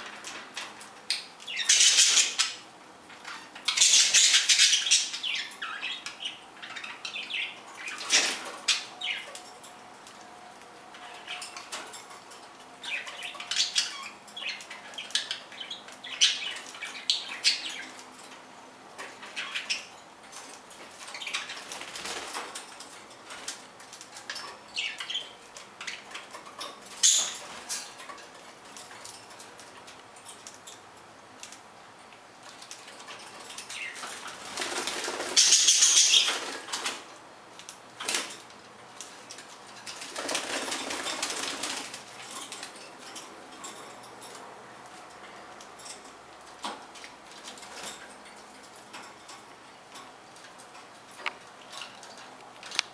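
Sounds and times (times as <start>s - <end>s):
budgerigars chirping: 1.5s - 2.6s, 3.7s - 9.3s, 12.8s - 18.0s, 27.0s - 27.5s, 33.7s - 36.5s
wings flapping: 34.1s - 37.0s, 39.9s - 42.6s.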